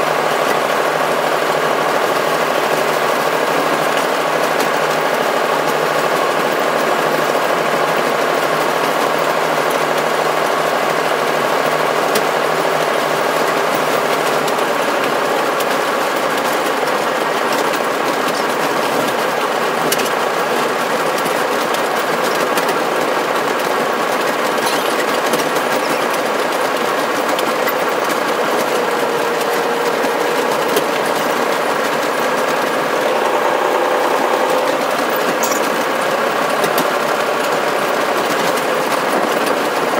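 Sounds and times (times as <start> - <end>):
locomotive hum and rattle: 0.0 - 39.9.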